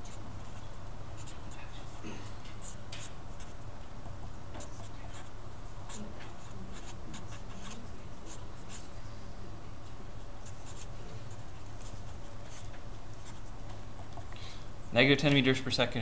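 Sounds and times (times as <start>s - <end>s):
marker scratching on paper: 0.0s - 3.6s, 4.6s - 8.9s, 10.4s - 14.3s
steady low hum: 0.0s - 16.0s.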